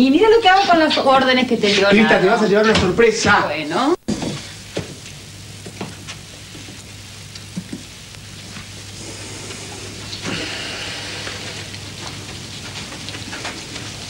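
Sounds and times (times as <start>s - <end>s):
low mains hum: 0.0s - 14.0s
tape hiss: 3.2s - 14.0s.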